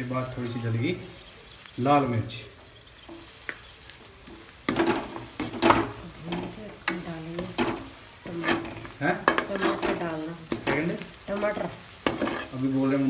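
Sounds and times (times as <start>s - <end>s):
oil sizzling: 0.0s - 13.0s
spatula scraping a pan: 4.2s - 13.0s.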